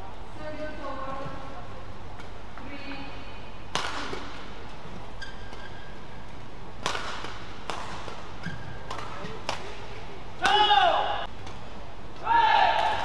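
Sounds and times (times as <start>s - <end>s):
racket hitting shuttlecock: 3.7s - 5.8s, 6.8s - 11.6s
shoe squeaks on court floor: 5.1s - 5.9s.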